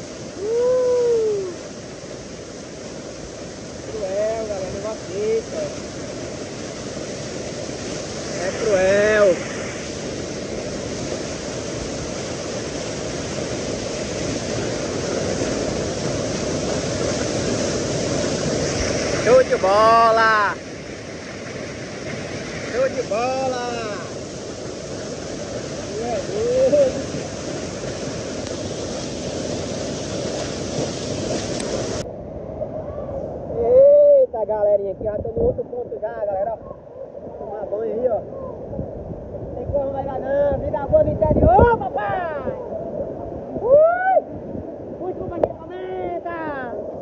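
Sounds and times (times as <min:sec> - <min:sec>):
waterfall rushing over rocks: 0:00.0 - 0:32.1
river water rushing: 0:00.0 - 0:33.6.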